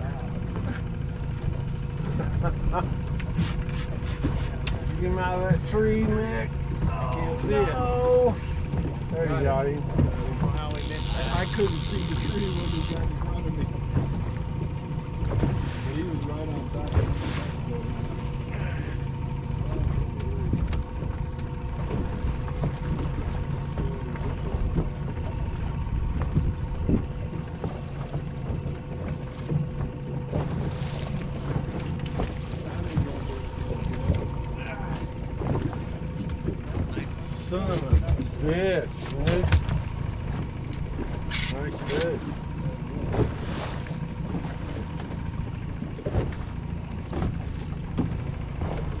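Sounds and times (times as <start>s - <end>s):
water slapping against boat hull: 0.0s - 49.0s
wind rumbling on microphone: 24.4s - 29.8s
short knocks or splashes: 26.1s - 49.0s.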